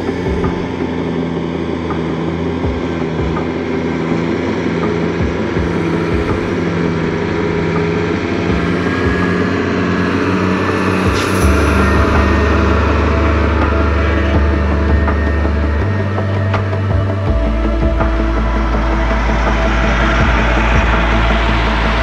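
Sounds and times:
diesel truck engine running: 0:00.0 - 0:22.0.

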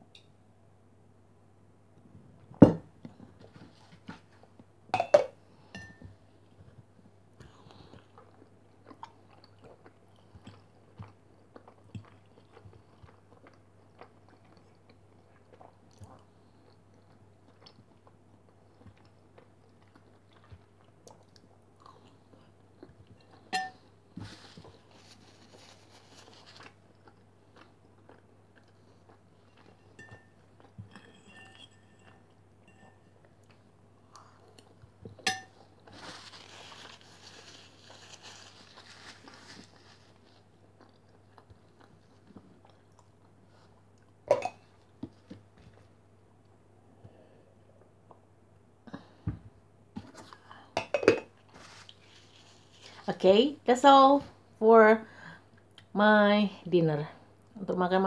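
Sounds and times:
close chewing: 0:07.4 - 0:23.5, 0:24.3 - 0:31.2, 0:33.4 - 0:44.1
fork clinking on plate: 0:31.0 - 0:33.1.

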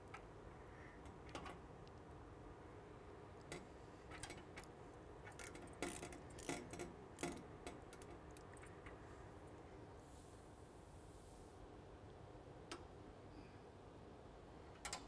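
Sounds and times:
wrench clicking on metal fittings: 0:05.3 - 0:08.5.

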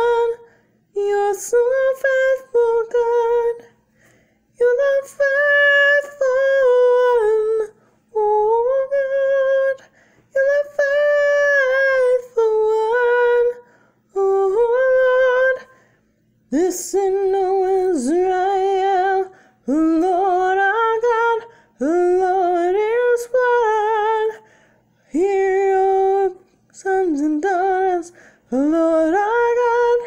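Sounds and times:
woman singing unaccompanied: 0:00.0 - 0:03.8, 0:04.5 - 0:30.0
singer breathing: 0:00.4 - 0:00.9, 0:03.7 - 0:04.6, 0:09.8 - 0:10.4, 0:13.6 - 0:14.1, 0:15.6 - 0:16.3, 0:19.3 - 0:19.7, 0:21.4 - 0:21.8, 0:24.4 - 0:25.1, 0:28.1 - 0:28.5.

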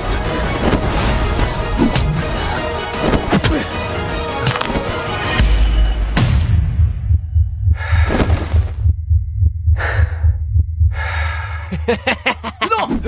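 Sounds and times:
heartbeat pounding: 0:06.2 - 0:11.8
heavy breaths: 0:07.6 - 0:08.8, 0:09.7 - 0:11.7.

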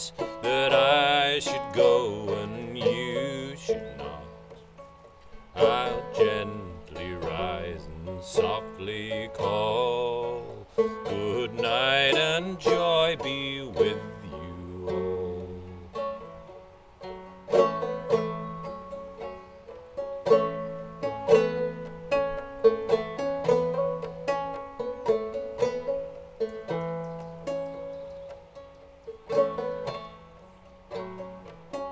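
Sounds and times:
man singing: 0:00.0 - 0:04.6, 0:05.5 - 0:16.2
banjo plucked clawhammer style: 0:00.0 - 0:31.9.

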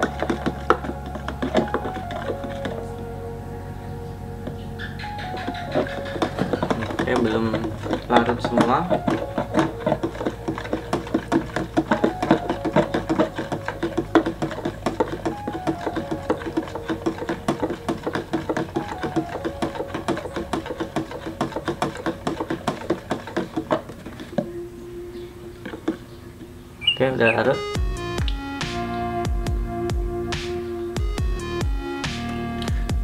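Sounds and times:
metal spoon stirring in plastic cup: 0:00.0 - 0:02.9, 0:05.2 - 0:24.6.

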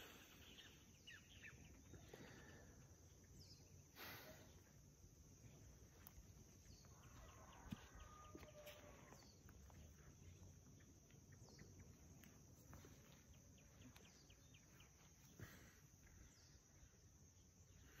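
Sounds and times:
birds chirping: 0:00.0 - 0:18.0
distant rooster crowing: 0:06.7 - 0:09.4.

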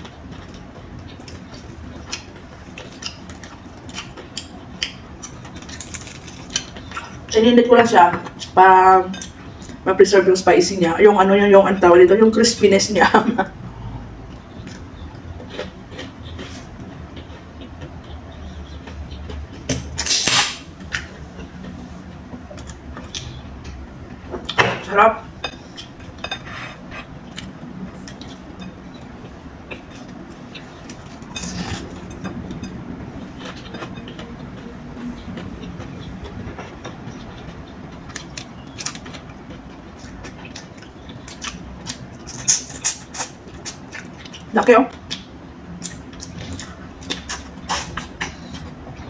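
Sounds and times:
peeling and chewing shrimp: 0:00.0 - 0:07.3, 0:25.5 - 0:49.0
chewing with wet mouth clicks: 0:35.4 - 0:48.7.

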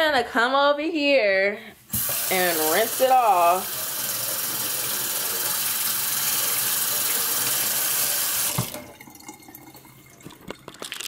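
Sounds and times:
faucet running into metal sink: 0:01.9 - 0:10.7.

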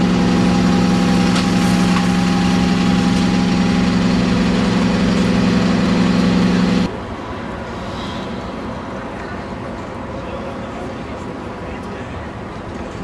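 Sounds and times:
bus engine idling: 0:00.0 - 0:06.9.

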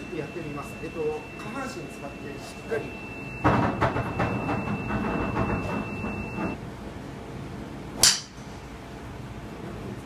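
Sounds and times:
faint high whine: 0:00.0 - 0:06.6.

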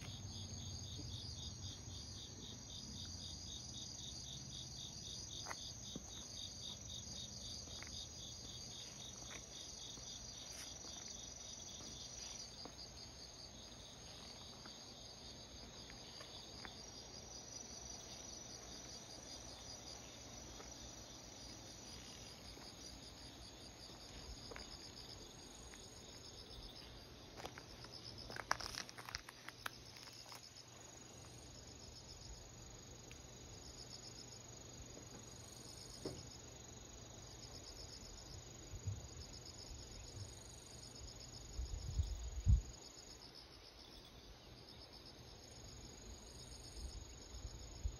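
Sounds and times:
insects chirping in pulsing trill: 0:00.0 - 0:47.9
rustles and clicks: 0:27.4 - 0:30.5.

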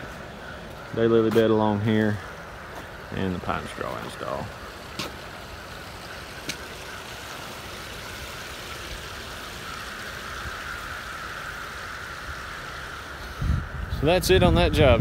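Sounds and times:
water jets splashing into pool: 0:02.7 - 0:13.2.

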